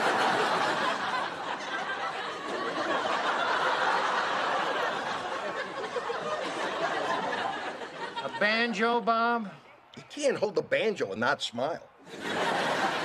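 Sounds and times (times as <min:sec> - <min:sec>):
studio audience laughing: 0:00.0 - 0:08.8, 0:12.0 - 0:13.0.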